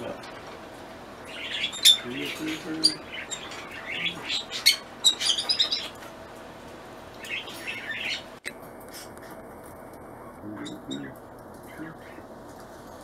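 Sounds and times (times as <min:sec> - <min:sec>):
cockatiels chirping: 0:01.2 - 0:06.0, 0:07.2 - 0:08.3.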